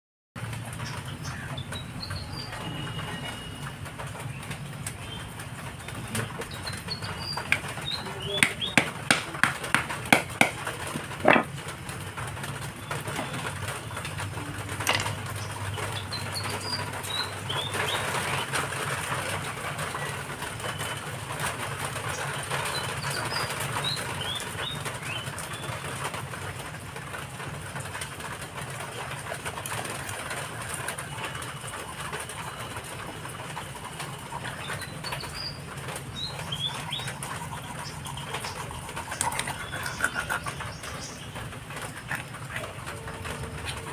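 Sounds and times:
small bird chirping: 36.2 - 42.3.

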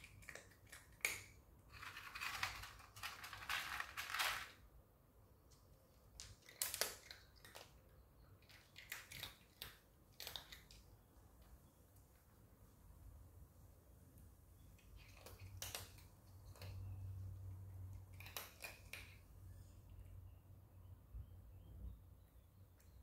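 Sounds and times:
cat crunching dry kibble: 0.0 - 4.6, 6.0 - 10.9, 14.8 - 19.3.

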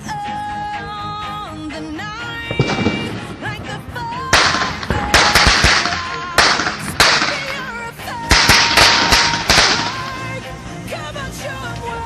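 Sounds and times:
fireworks bangs with crackling hiss: 2.5 - 7.7.

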